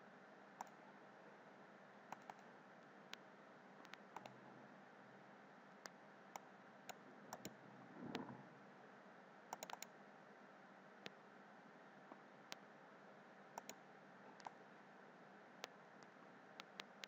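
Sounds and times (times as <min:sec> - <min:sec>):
low steady hiss: 0:00.0 - 0:17.0
computer mouse clicks: 0:00.6 - 0:00.8, 0:02.1 - 0:02.5, 0:03.8 - 0:04.4, 0:05.8 - 0:08.4, 0:09.5 - 0:10.0, 0:13.6 - 0:13.8, 0:14.4 - 0:14.6, 0:15.6 - 0:17.0
keystrokes: 0:02.1 - 0:02.4, 0:09.5 - 0:09.9, 0:13.6 - 0:13.8
soft low rustle: 0:07.7 - 0:08.6.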